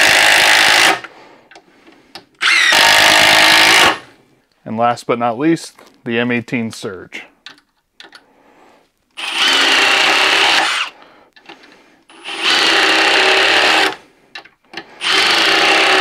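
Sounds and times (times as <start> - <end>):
impact driver driving screws into wood: 0.0 - 1.1, 2.4 - 4.0, 9.2 - 11.5, 12.1 - 14.0, 15.0 - 16.0.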